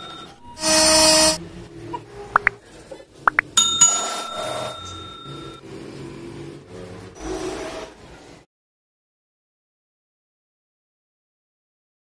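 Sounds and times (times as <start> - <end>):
bell-like ding: 3.6 - 5.6.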